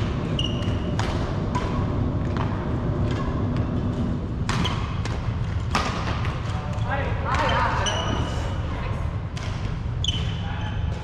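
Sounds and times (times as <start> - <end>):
low hum of hall: 0.0 - 11.0
shoe squeak on wooden court: 0.3 - 1.0, 6.8 - 8.4, 10.0 - 10.9
racket striking shuttlecock: 0.6 - 6.5.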